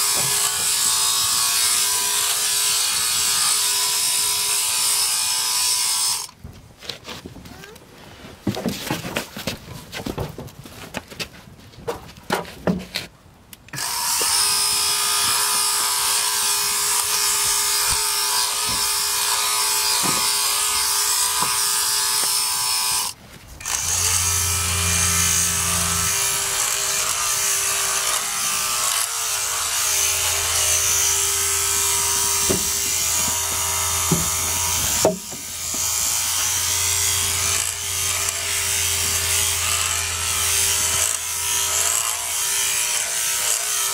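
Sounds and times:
sheep clipper running: 0:23.6 - 0:43.8.

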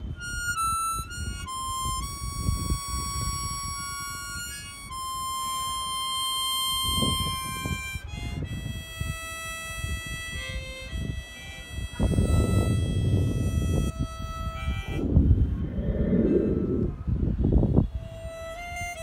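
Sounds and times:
harmonica melody: 0:00.0 - 0:16.4, 0:17.8 - 0:19.0
low rumbling noise: 0:15.0 - 0:18.1.

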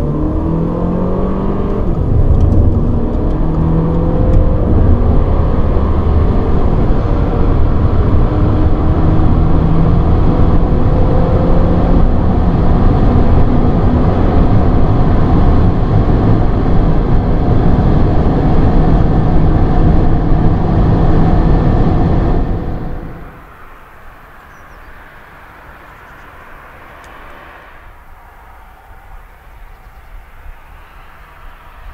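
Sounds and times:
low car engine note: 0:00.0 - 0:23.4
tyre and wind noise: 0:00.0 - 0:23.4.

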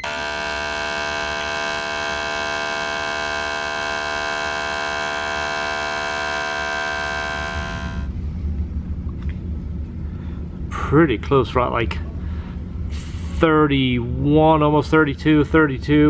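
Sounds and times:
electric buzz of injector tester: 0:00.0 - 0:08.1.

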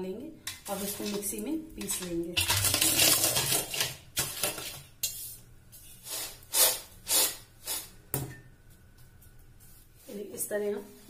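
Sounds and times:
peanuts crushed under steel bowl: 0:00.5 - 0:04.8
nuts rattling in metal pan: 0:00.6 - 0:04.7.

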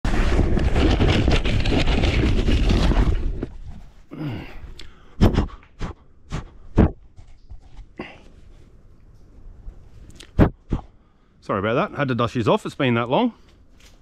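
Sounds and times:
loud rubbing scraping: 0:00.0 - 0:04.0.

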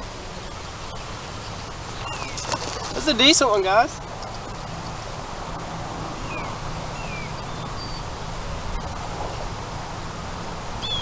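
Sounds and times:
wind noise on microphone: 0:00.0 - 0:11.0
falling bird chirps: 0:02.0 - 0:02.9.

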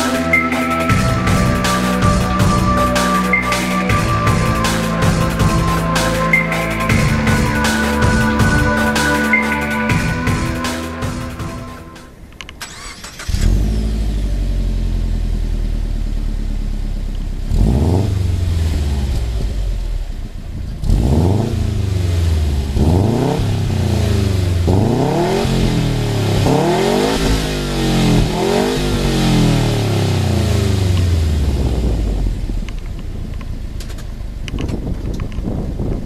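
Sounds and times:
car engine idling and revving: 0:00.0 - 0:36.0.

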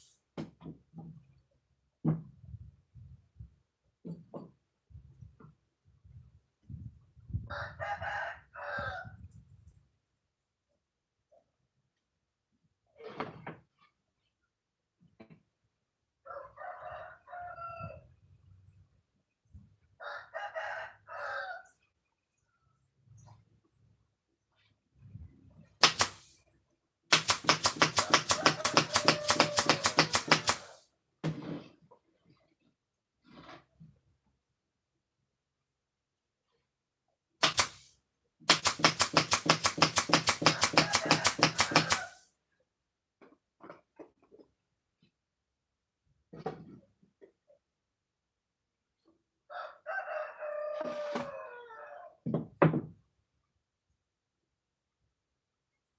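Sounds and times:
rooster crowing: 0:07.5 - 0:09.1, 0:20.0 - 0:21.7, 0:28.2 - 0:30.7, 0:40.5 - 0:42.2, 0:49.5 - 0:52.2.

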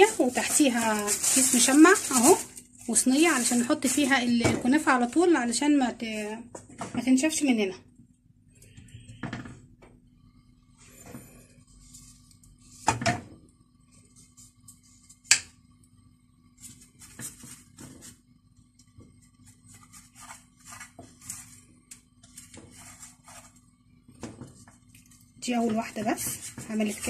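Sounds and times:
spatula scraping a frying pan: 0:22.4 - 0:23.6.

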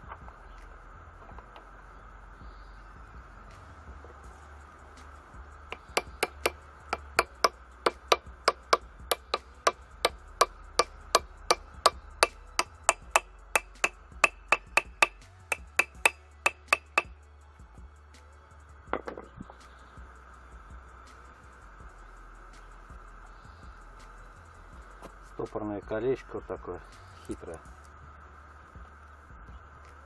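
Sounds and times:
hammer tapping metal gear: 0:05.7 - 0:17.1.

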